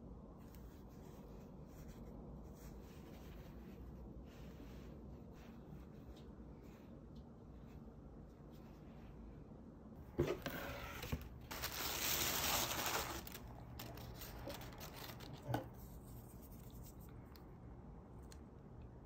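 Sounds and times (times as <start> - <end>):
tissue paper rustling: 10.3 - 17.0.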